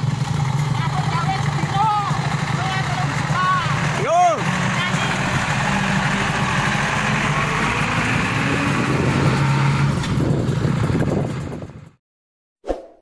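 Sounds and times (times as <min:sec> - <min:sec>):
diesel truck engine running: 0:00.0 - 0:12.0.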